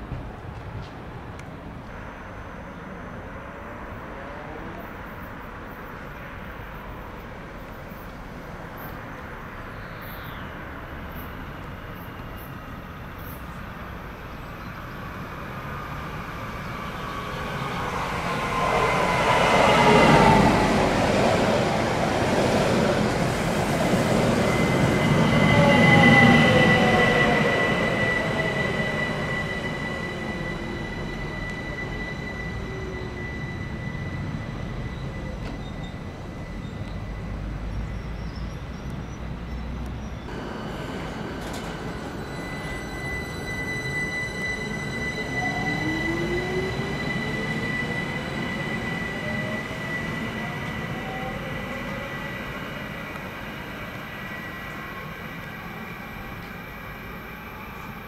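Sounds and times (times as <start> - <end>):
train brake squeal: 14.5 - 58.0.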